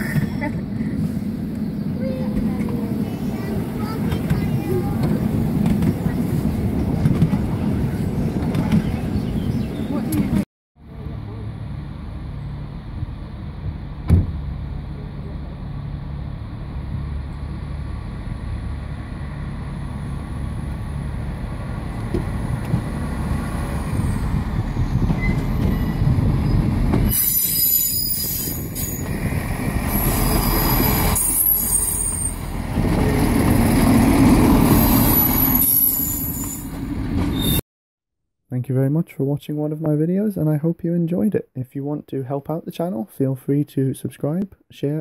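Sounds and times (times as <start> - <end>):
train engines rumbling: 0.0 - 37.6
wheels squealing: 23.7 - 33.3, 34.5 - 37.6.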